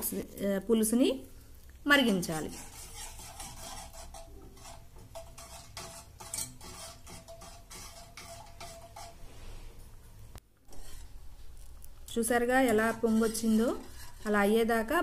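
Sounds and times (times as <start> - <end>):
whisk clicking against metal pan: 2.4 - 9.2.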